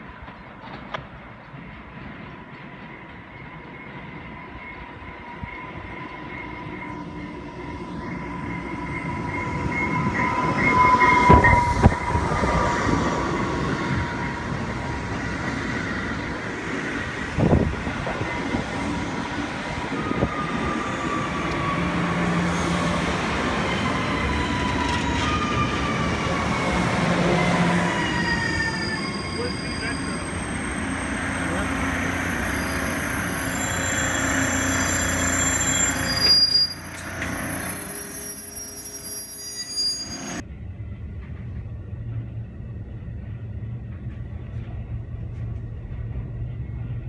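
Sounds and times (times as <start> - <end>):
train clunk: 0.0 - 5.0
electric train rolling past: 0.0 - 47.0
falling brake whines: 32.4 - 40.4.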